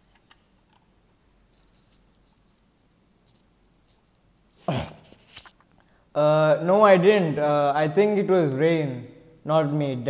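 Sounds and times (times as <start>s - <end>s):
plastic toy rustling and rattling: 1.6s - 5.6s.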